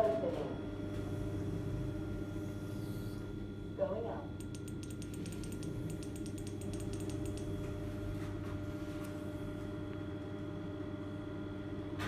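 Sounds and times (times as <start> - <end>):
rapid light clicks: 4.4 - 7.6.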